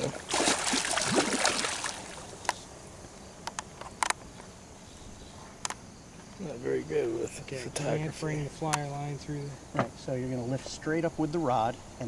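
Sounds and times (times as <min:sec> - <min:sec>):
fish splashing at surface: 0:00.0 - 0:02.4.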